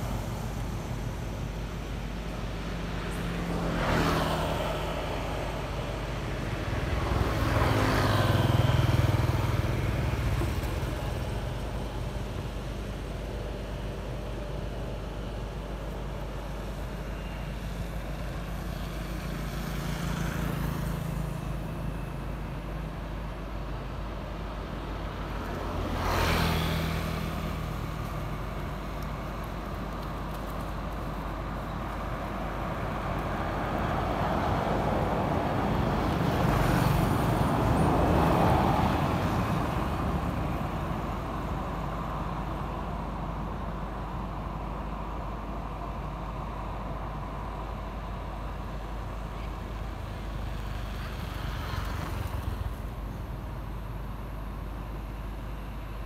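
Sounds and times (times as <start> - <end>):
road traffic hum: 0.0 - 56.0
vehicle passing: 3.2 - 12.4, 25.8 - 28.5.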